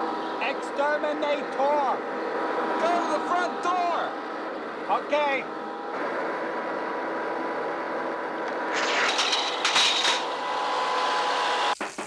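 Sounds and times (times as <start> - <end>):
vacuum cleaner running on rug: 8.8 - 11.8.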